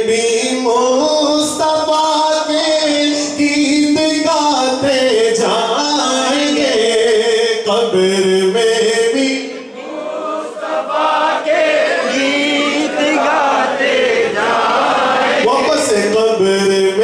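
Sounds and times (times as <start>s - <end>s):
man singing unaccompanied: 0.0s - 9.7s, 15.4s - 17.0s.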